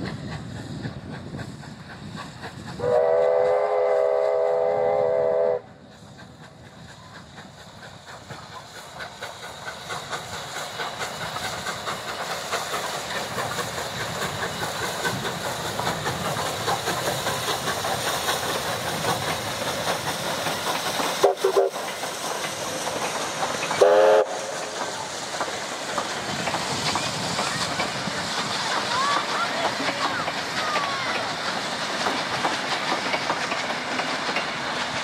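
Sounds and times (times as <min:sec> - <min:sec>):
steam locomotive chuffing: 0:00.0 - 0:35.0
steam locomotive whistle: 0:02.8 - 0:05.8, 0:21.2 - 0:21.9, 0:23.8 - 0:24.8.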